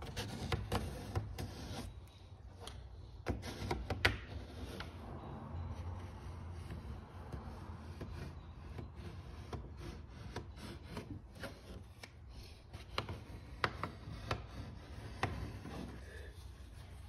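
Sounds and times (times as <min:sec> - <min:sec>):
hands rubbing and rustling tape: 0:08.8 - 0:17.0.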